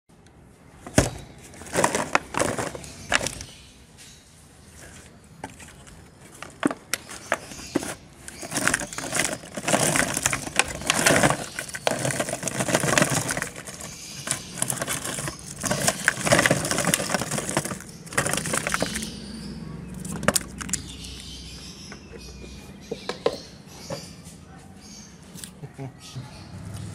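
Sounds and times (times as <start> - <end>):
plastic cups clattering onto tray: 0.9 - 3.5, 5.4 - 19.1.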